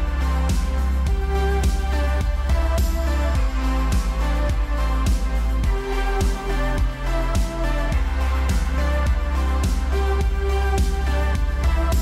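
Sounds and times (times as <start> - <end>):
background music with steady beat: 0.0 - 12.0
sustained bass: 0.0 - 12.0.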